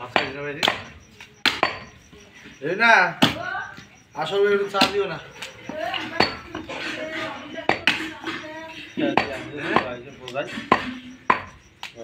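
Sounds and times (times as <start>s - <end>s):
voices talking: 0.0s - 12.0s
knives chopping on wood block: 0.1s - 1.9s, 10.6s - 12.0s.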